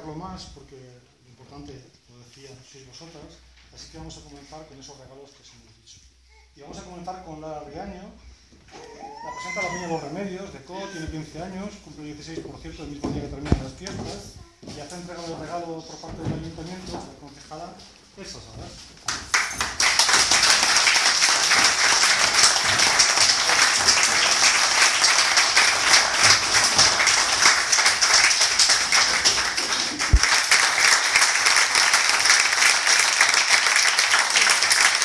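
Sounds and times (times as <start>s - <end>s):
small group applauding: 19.1s - 35.0s.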